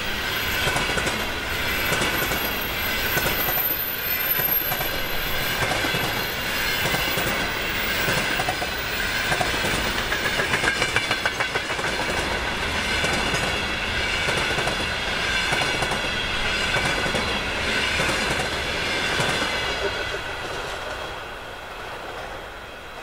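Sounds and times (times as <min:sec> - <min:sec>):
train wheels clattering over rail joints: 0:04.3 - 0:21.1.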